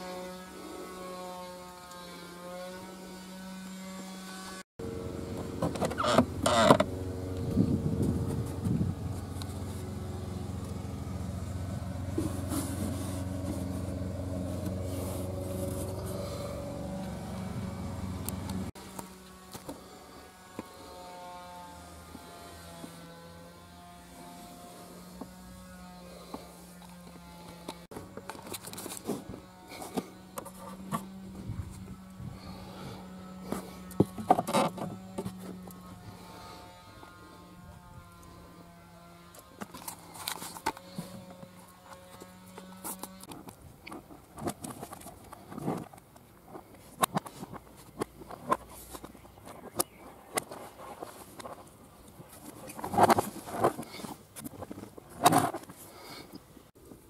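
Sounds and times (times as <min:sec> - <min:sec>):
low electric hum: 0:00.0 - 0:39.6
rustling handling noise: 0:07.8 - 0:20.0, 0:39.4 - 0:57.0.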